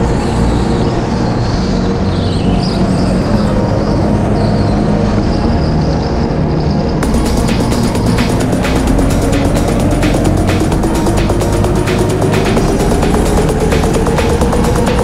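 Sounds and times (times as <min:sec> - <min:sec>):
music with a steady beat: 0:07.0 - 0:15.0.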